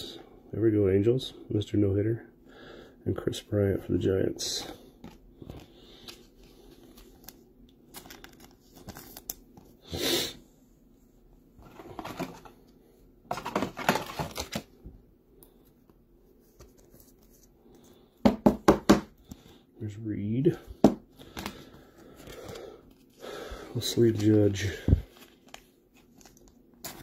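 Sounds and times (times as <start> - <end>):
plastic rustling and crinkling: 5.0 - 9.7, 11.6 - 12.7, 13.3 - 14.8, 21.2 - 27.0.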